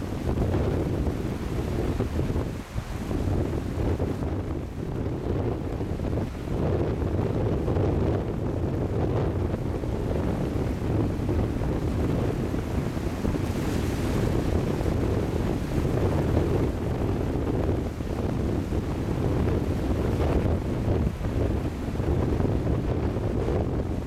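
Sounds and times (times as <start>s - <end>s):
wind buffeting microphone: 0.0s - 24.0s
small waves washing on sand: 8.6s - 24.0s.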